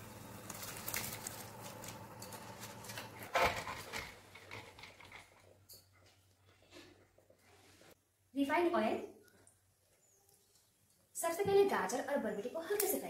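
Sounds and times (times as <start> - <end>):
rice pattering into boiling water: 0.0 - 5.3.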